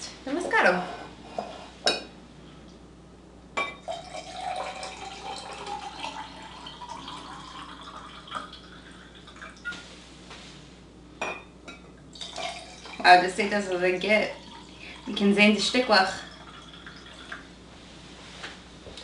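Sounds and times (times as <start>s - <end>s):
wine pouring into glass: 3.8s - 9.8s, 12.2s - 13.0s, 14.2s - 15.2s, 16.1s - 17.5s.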